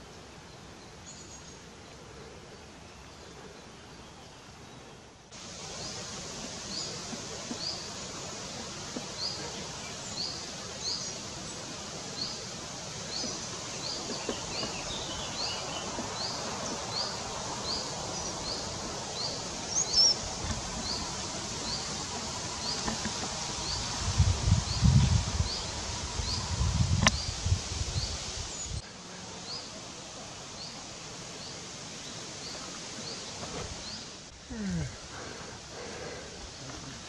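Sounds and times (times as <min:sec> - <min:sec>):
small bird chirping: 0:05.6 - 0:24.0.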